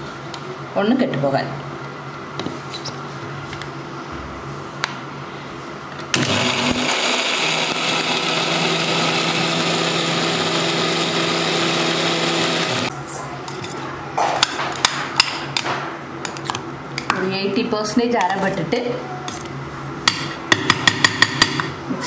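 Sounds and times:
mixer grinder motor running: 6.1 - 12.9.

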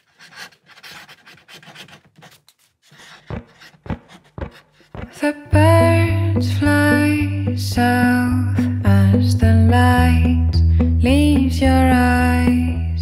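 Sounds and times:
pen scratching on paper: 0.0 - 5.2
guitar music: 5.5 - 13.0.

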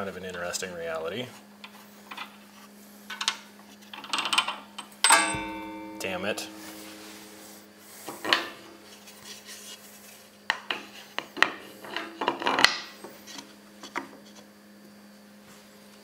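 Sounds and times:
steady low hum: 5.1 - 9.0.

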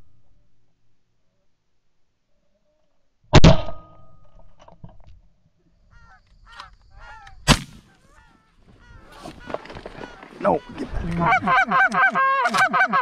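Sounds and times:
geese honking: 5.9 - 13.0
shotgun shots: 7.4 - 8.0.

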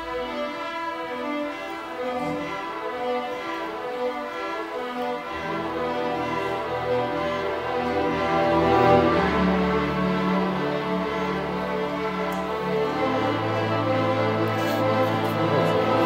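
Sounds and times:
cellos and double basses: 0.0 - 16.0
violins playing: 0.0 - 16.0.

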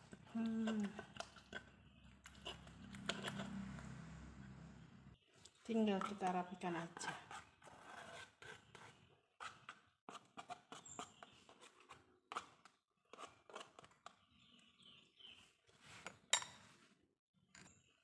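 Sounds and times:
spoon scraping stone mortar: 0.0 - 3.9, 5.4 - 14.6.

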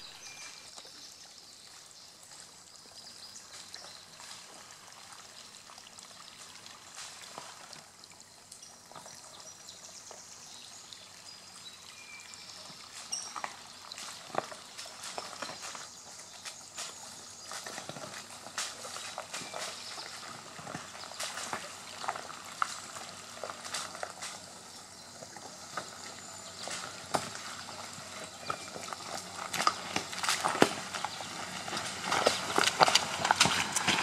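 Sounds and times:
tyres crunching over gravel: 12.6 - 34.0
stones clicking and snapping: 32.0 - 34.0.

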